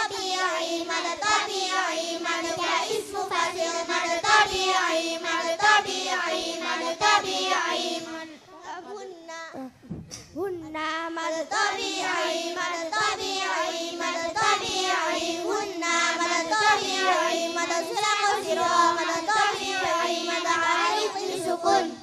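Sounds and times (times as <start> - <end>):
girls chanting in unison: 0.0 - 9.0, 11.0 - 22.0.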